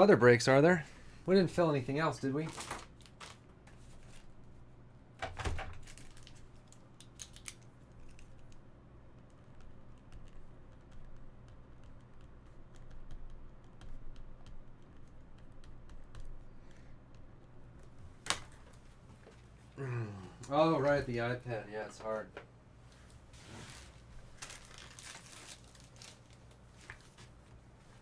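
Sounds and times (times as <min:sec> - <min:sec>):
steady low hum: 0:06.0 - 0:28.0.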